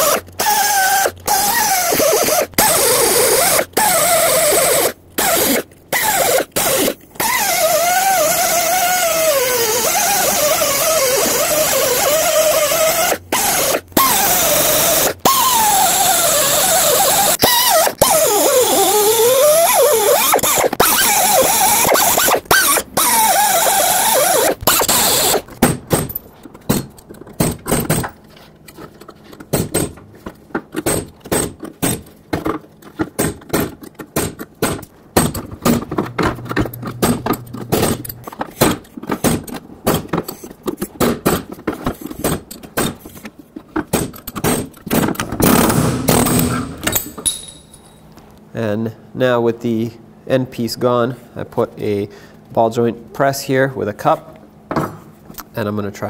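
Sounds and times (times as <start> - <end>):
cutoff wheel grinding metal: 0.0 - 26.2, 35.2 - 39.6
metallic clicks knocks and scrapes: 24.6 - 45.4.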